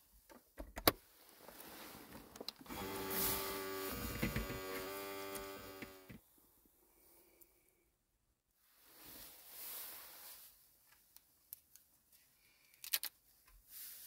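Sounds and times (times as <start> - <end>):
water pump motor hum: 2.7 - 6.2.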